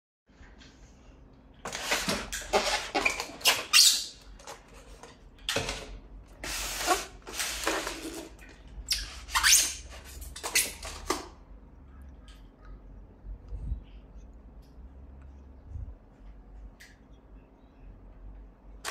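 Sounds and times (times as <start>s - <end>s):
packing tape being pulled: 6.4s - 8.3s
styrofoam squeaking and scraping: 6.4s - 11.0s.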